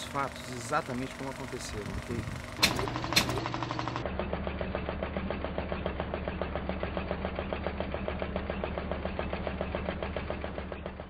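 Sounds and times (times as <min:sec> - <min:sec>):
film projector clatter: 0:00.0 - 0:04.1.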